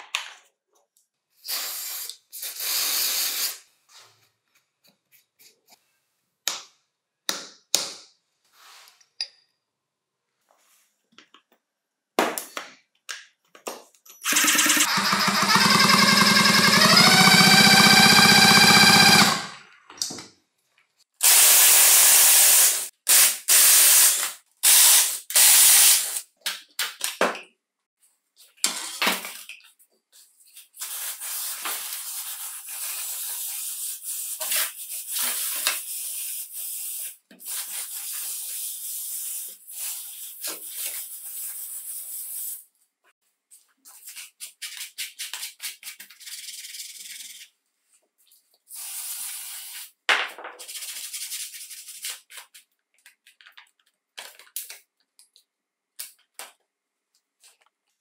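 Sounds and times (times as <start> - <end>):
aerosol spray can hissing: 21.2 - 26.2.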